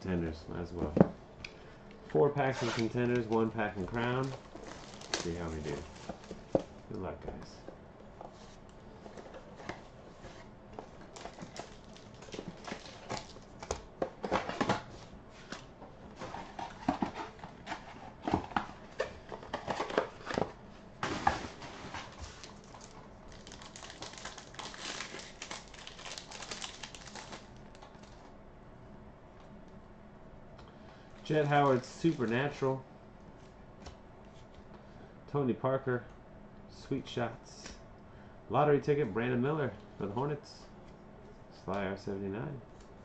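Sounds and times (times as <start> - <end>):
foil pack crinkling torn open: 4.0 - 6.2, 11.0 - 13.5, 22.1 - 28.2.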